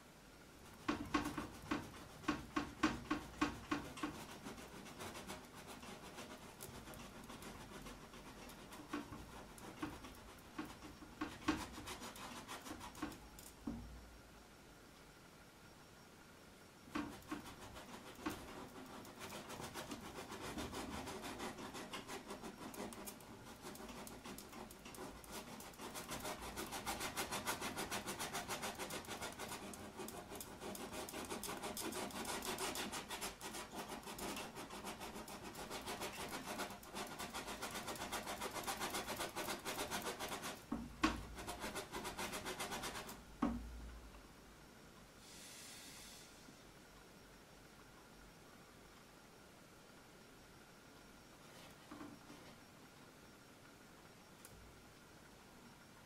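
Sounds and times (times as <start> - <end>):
paintbrush scrubbing on canvas: 0.6 - 13.3, 17.0 - 40.7, 41.3 - 43.2.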